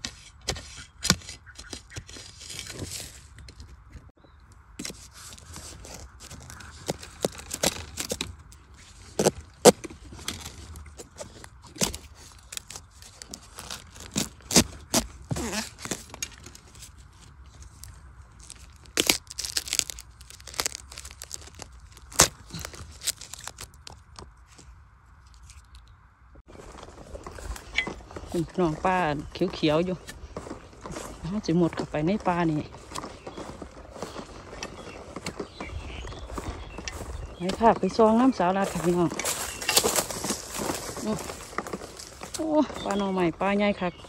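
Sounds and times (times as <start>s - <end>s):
knife digging in soil: 0.0s - 3.4s, 4.8s - 17.0s, 18.4s - 24.2s, 36.3s - 43.5s.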